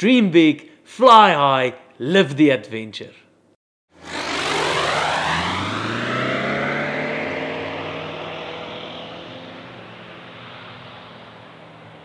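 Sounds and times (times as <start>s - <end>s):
propeller aircraft engine drone: 3.9s - 12.0s.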